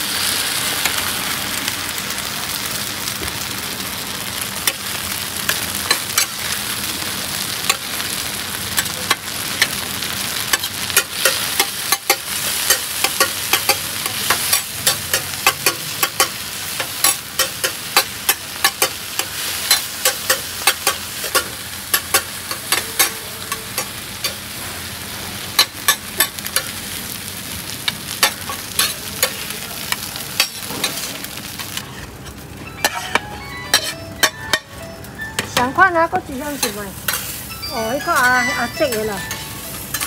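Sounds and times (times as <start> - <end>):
omelette sizzling in oil: 0.0 - 31.9
metal spatula scraping a pan: 30.4 - 34.4.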